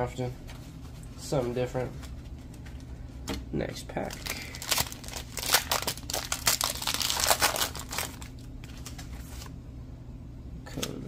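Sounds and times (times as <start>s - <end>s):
foil wrapper crinkling: 3.9s - 9.5s.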